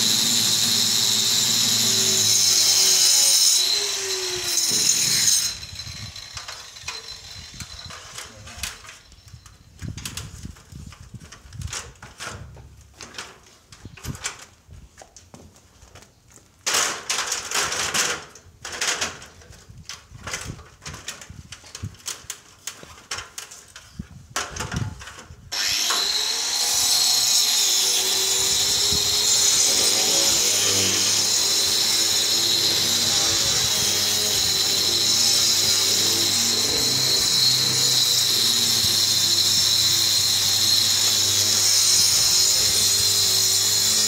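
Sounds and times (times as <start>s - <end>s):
angle grinder cutting block wall: 0.0s - 9.2s, 25.5s - 44.0s.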